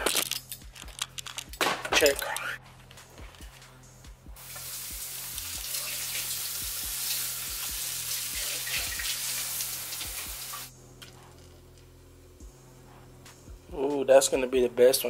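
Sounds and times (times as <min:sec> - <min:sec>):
butter sizzling in frying pan: 0:04.4 - 0:10.7.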